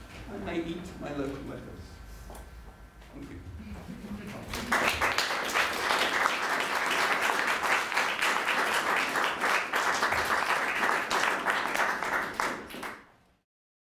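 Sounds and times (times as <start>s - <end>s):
audience clapping: 4.4s - 13.2s.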